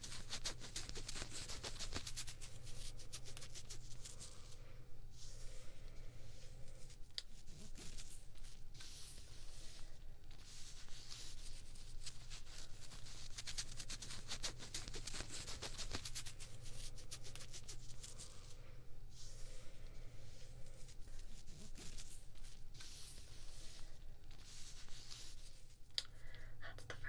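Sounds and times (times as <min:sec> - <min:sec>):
fingertips scratching fabric: 0:00.0 - 0:04.6, 0:06.3 - 0:25.8
low steady hum: 0:00.0 - 0:27.0.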